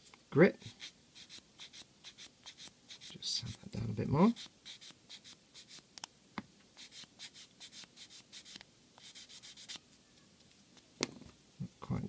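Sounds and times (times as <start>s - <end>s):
sanding stick rasping on plastic: 0.7s - 3.6s, 4.3s - 5.8s, 6.8s - 9.8s.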